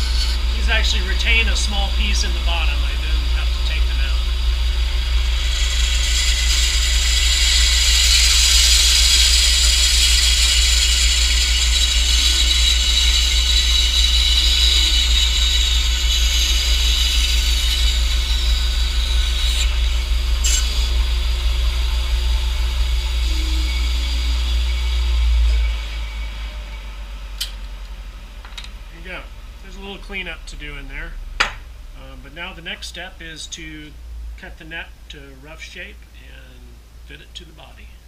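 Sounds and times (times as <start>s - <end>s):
saw blade cutting wood: 0.0s - 4.2s, 5.0s - 21.8s
bandsaw motor hum: 0.0s - 34.6s
sharp knocks: 31.4s - 31.7s.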